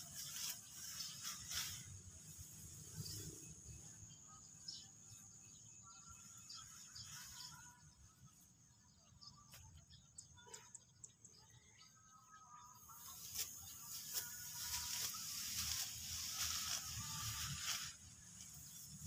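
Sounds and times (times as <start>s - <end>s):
sickle cutting rice stalks: 0.0s - 3.8s, 6.2s - 7.9s, 12.9s - 19.0s.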